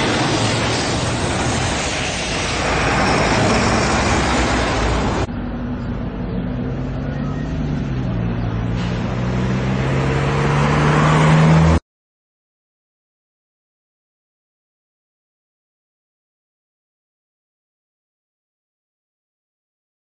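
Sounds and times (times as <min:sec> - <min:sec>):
heavy truck engine approaching: 0:00.0 - 0:11.8
road noise rushing: 0:00.0 - 0:11.8
vehicle engines: 0:00.0 - 0:11.8.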